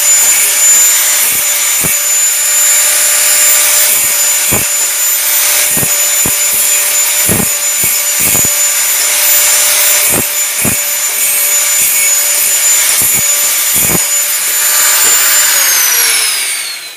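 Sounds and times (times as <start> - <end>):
angle grinder cutting steel: 0.0 - 16.9.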